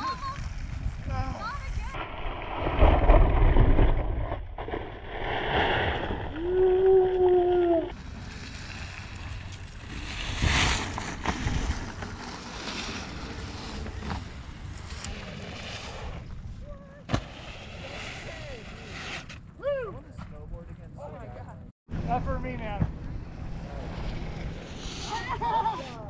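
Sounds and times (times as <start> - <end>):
wheels rolling over dirt: 0.0 - 20.4
wind on microphone: 0.1 - 8.0.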